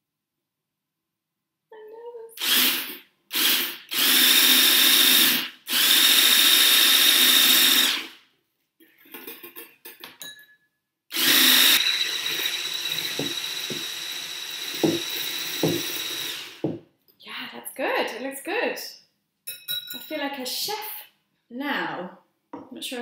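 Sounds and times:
electric blender whining: 2.4s - 8.2s, 11.1s - 16.8s.

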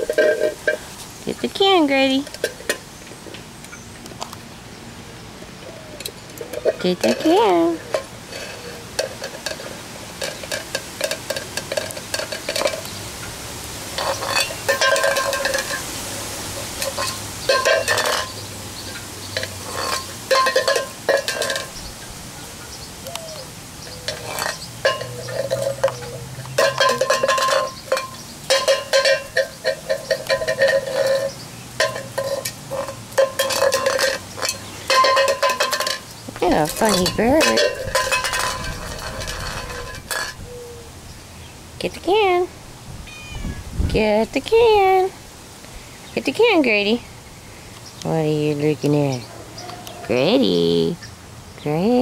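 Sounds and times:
tin can rattling and scraping: 0.0s - 1.0s, 6.2s - 12.9s, 13.9s - 21.8s, 24.1s - 40.4s.

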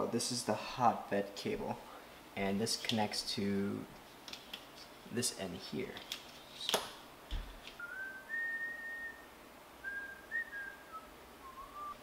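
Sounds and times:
person whistling a tune: 7.8s - 12.0s.

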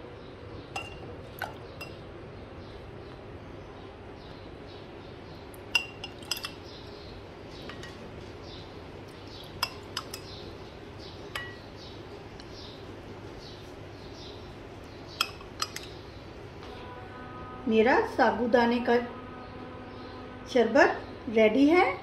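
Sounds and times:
low background noise: 0.0s - 22.0s
spoon clinking against glass: 5.8s - 6.6s, 15.2s - 15.9s.

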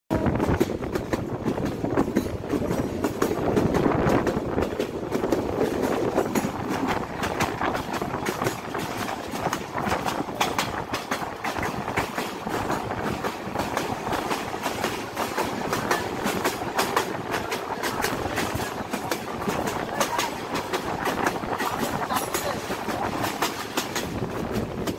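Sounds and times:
rails clicking and clattering: 0.1s - 24.9s
train wheels rumbling on track: 0.1s - 24.9s.

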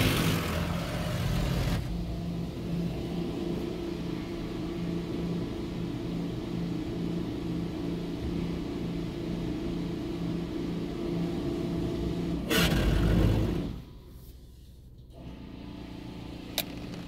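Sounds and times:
loud rushing noise: 0.0s - 4.2s
car wash machinery humming: 0.0s - 17.0s.

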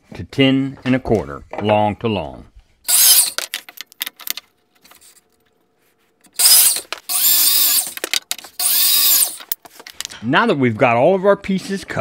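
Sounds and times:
miter saw cutting wood: 2.9s - 3.4s, 6.4s - 8.0s, 8.6s - 9.5s.

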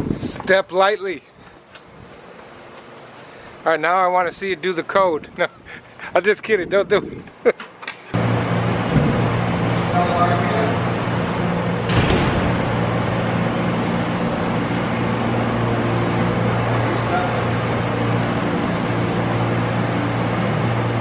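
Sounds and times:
machine hum with rushing noise: 8.2s - 21.0s.

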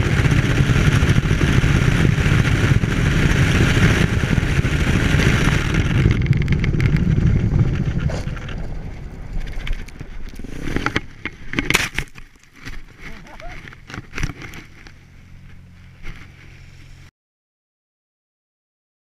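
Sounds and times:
snow spraying over camera: 0.0s - 10.9s
wind rush: 0.0s - 11.6s
dirt bike engines at high speed: 0.0s - 17.1s.

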